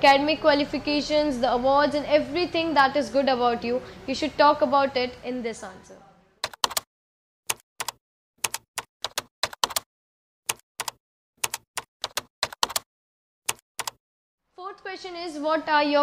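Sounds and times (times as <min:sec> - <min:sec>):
keystroke clicks: 0:06.4 - 0:06.9, 0:07.5 - 0:09.8, 0:10.5 - 0:12.8, 0:13.5 - 0:14.0.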